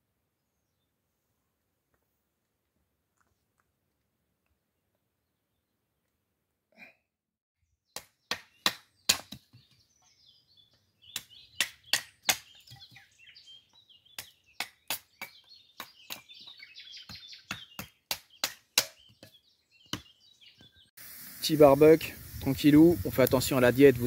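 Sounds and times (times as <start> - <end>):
birds chirping: 7.7 - 24.0.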